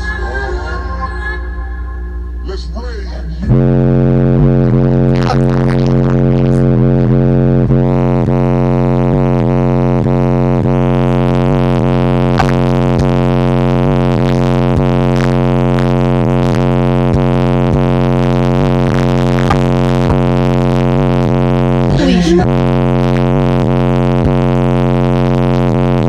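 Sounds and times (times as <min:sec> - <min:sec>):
deep buzzing subwoofer bass: 0:00.0 - 0:26.0.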